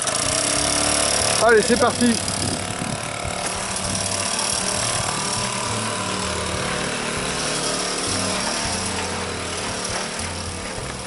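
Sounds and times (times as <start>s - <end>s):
moped engine rattling buzz: 0.0s - 11.0s.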